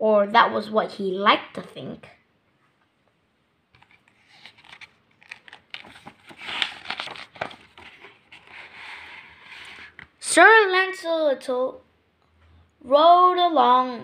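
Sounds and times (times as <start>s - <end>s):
book pages rustling: 3.8s - 10.2s.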